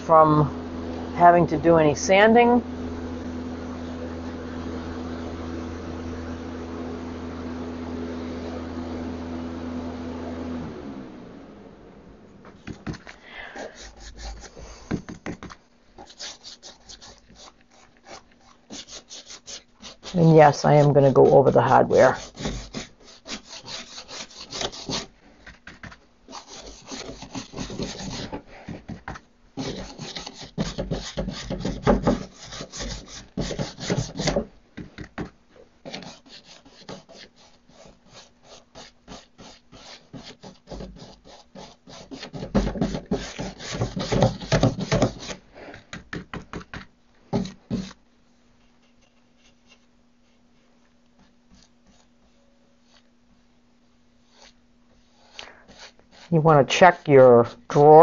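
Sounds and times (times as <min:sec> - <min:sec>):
paintbrush scrubbing on wood: 0:13.5 - 0:15.0, 0:16.0 - 0:25.1, 0:26.3 - 0:28.6, 0:29.6 - 0:34.4, 0:35.8 - 0:45.7, 0:54.2 - 0:58.0.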